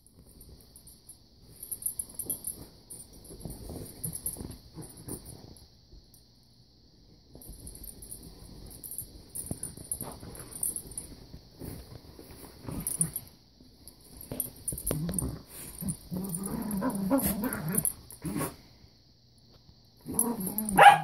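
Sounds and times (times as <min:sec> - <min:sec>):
bedding rustling: 0:00.1 - 0:05.7, 0:07.3 - 0:18.1
light jingling: 0:07.4 - 0:11.9.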